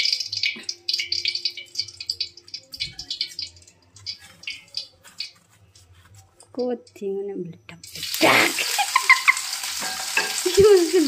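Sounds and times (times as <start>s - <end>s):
hot oil crackling in a wok: 0.0s - 5.4s, 7.8s - 11.0s.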